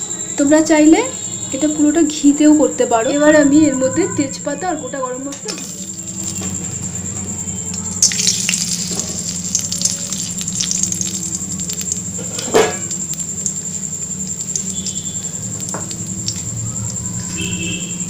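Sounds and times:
steady high whine: 0.0s - 18.0s
spices sizzling in hot oil: 7.7s - 17.1s
oil popping: 7.7s - 17.5s.

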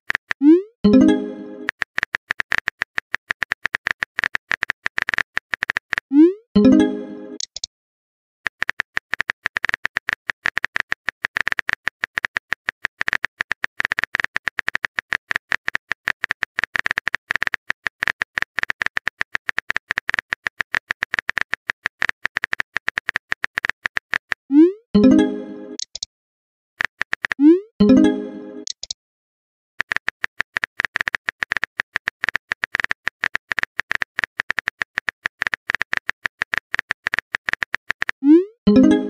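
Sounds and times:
rising pop sound effect: 0.4s - 1.7s, 6.1s - 7.5s, 24.5s - 25.8s, 27.4s - 28.7s, 38.2s - 39.0s.

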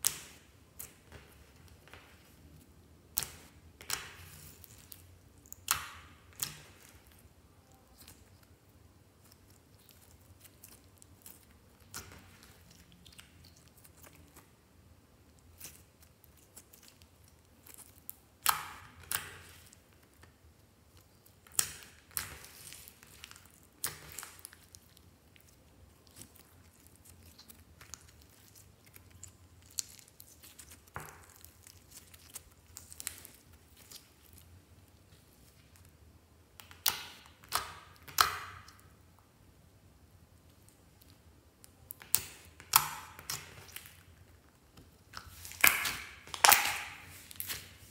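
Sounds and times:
slime squishing: 0.0s - 47.9s
air pockets popping in slime: 45.1s - 47.7s.

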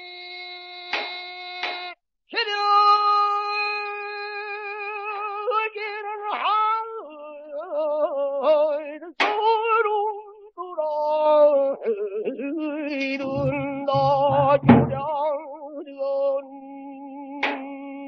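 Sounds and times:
man singing with vibrato: 2.3s - 18.0s
barrel drum stroke: 13.2s - 15.1s.

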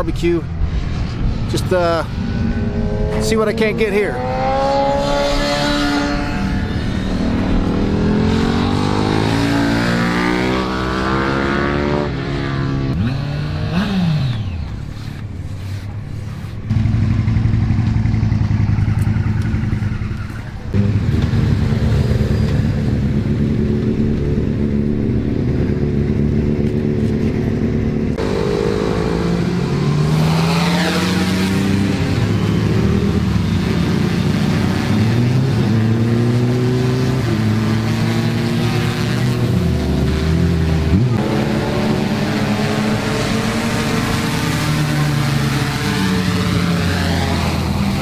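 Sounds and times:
motorcycle accelerating and passing: 0.0s - 48.0s
motorcycle engine running steadily: 16.7s - 28.3s.

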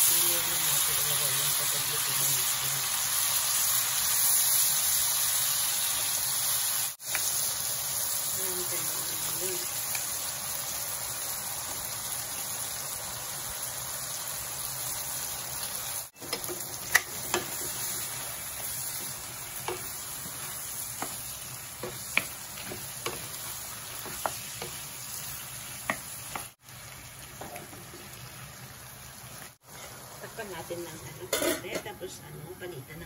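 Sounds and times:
shrimp sizzling in a frying pan: 0.0s - 32.9s
utensils clicking against a pan: 16.2s - 17.8s.

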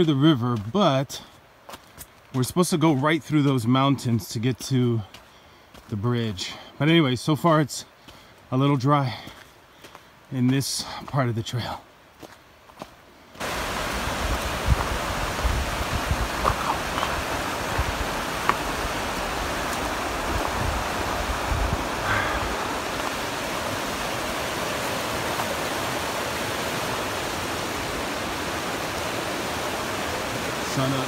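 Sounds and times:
river rushing over rocks: 13.4s - 31.0s.

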